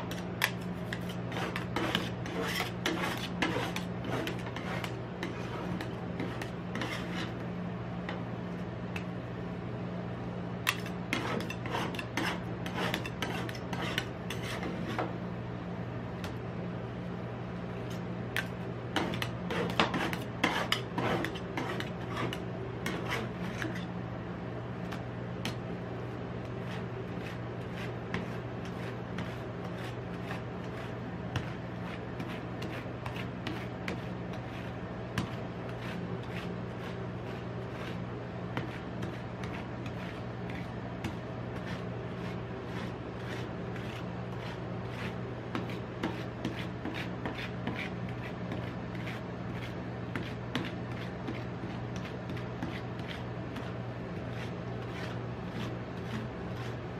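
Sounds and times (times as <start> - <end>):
spatulas scraping ice cream: 0.0 - 7.4, 10.7 - 15.2, 17.8 - 24.0, 26.4 - 56.9
steady low hum: 0.0 - 56.9.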